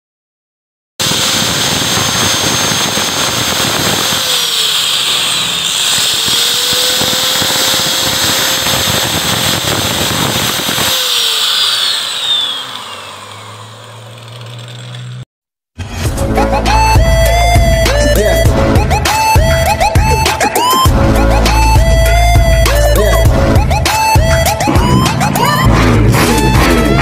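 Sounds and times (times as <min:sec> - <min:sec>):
angle grinder cutting metal: 0:01.0 - 0:15.2.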